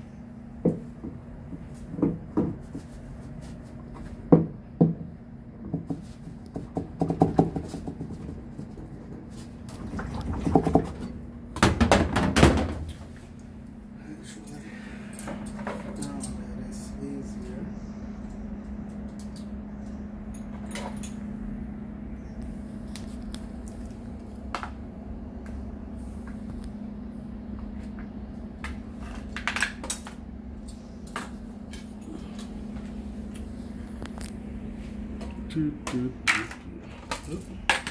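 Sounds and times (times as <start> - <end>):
steady low hum: 0.0 - 37.9
plastic knocks and rattles: 5.6 - 9.3.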